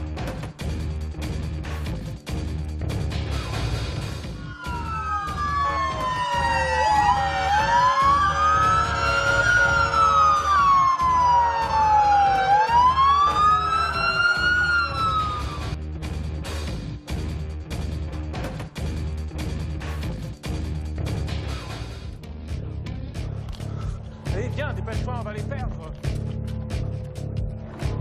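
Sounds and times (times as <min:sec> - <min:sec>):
music with steady beat: 0:00.0 - 0:28.0
wailing siren: 0:04.2 - 0:15.8.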